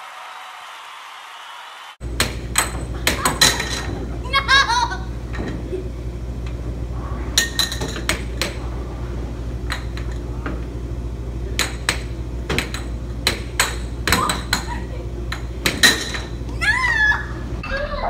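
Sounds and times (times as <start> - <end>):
steady low hum: 2.0 - 17.7
air hockey puck clacking: 2.1 - 4.0, 7.4 - 8.6, 9.6 - 10.6, 11.5 - 16.5.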